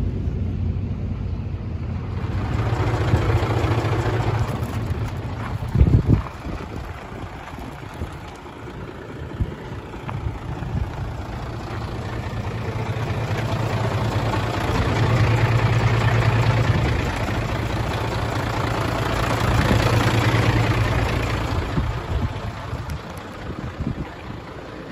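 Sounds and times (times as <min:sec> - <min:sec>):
diesel truck engine idling: 0:00.0 - 0:24.9.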